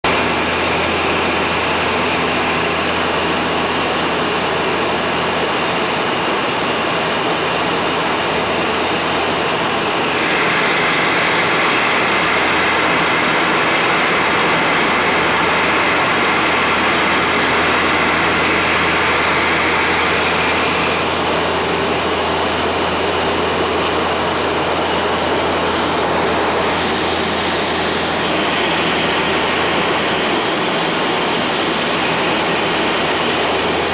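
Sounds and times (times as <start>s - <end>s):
turboprop cabin drone: 0.0s - 33.9s.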